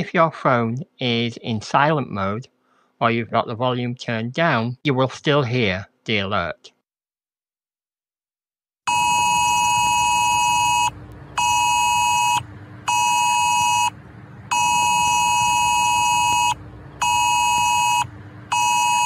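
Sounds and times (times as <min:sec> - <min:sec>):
loud alarm tone beeping: 0:08.9 - 0:19.0
low steady hum: 0:08.9 - 0:19.0.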